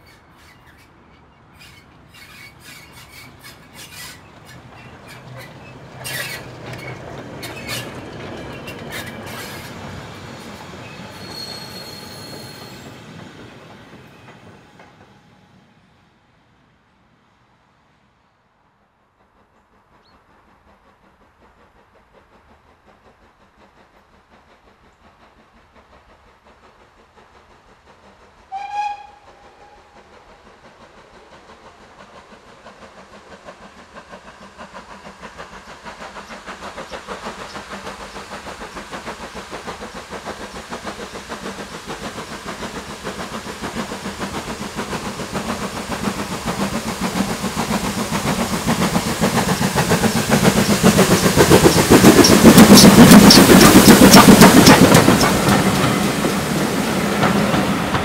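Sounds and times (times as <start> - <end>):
steam locomotive whistle blast: 10.8 - 13.0, 28.5 - 30.0
steam locomotive exhaust beats: 19.0 - 58.0.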